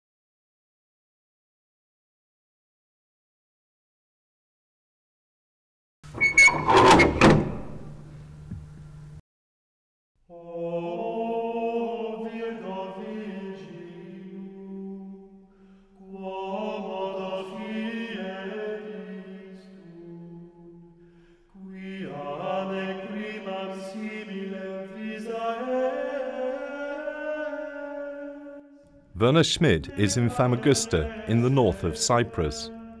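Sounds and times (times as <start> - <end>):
voices chanting low notes: 29.2 - 33.0.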